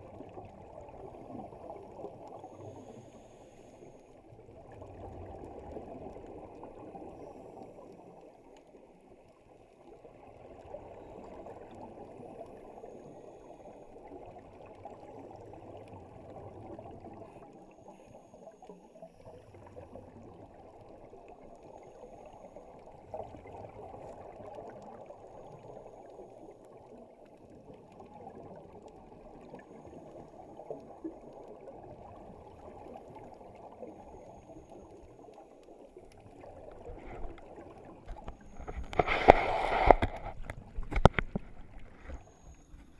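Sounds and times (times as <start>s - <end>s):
underwater rushing water: 0.0s - 42.9s
faint clicks: 4.9s - 9.4s, 16.8s - 42.9s.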